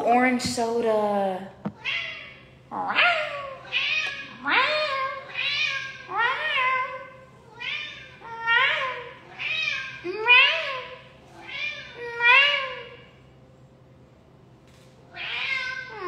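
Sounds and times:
cat meowing: 0:01.8 - 0:13.0, 0:15.1 - 0:16.0.

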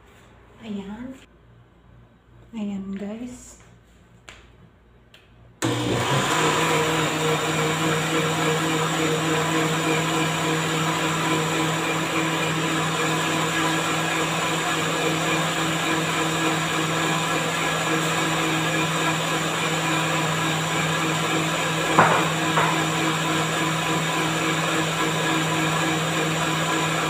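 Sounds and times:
blender motor running: 0:05.6 - 0:27.0.

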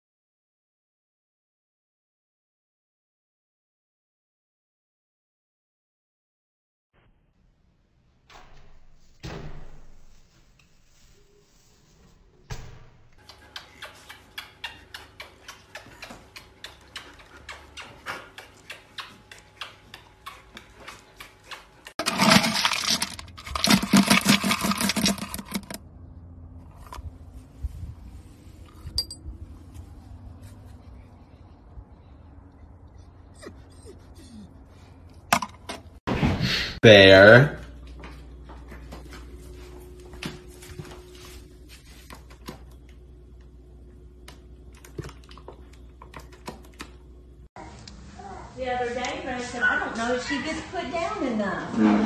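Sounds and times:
kibble pouring rattle: 0:22.0 - 0:25.8.

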